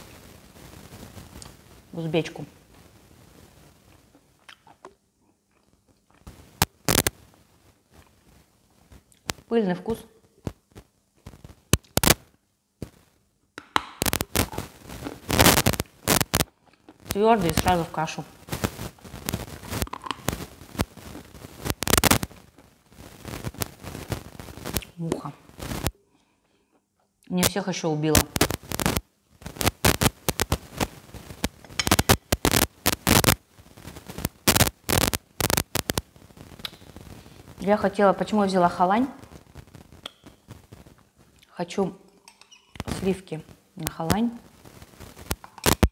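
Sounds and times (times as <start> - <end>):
crunching and chewing: 3.9 - 7.1, 14.0 - 17.2
chalk crunched between teeth: 3.9 - 7.2, 11.3 - 12.2, 13.7 - 17.8, 18.5 - 22.7, 28.2 - 33.4, 34.1 - 37.2, 44.7 - 45.9.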